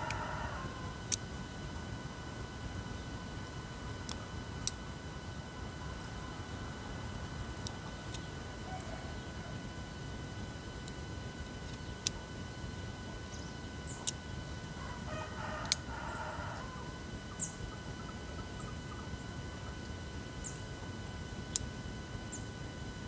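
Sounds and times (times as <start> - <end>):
multitool metal clicks: 15.6 - 15.8.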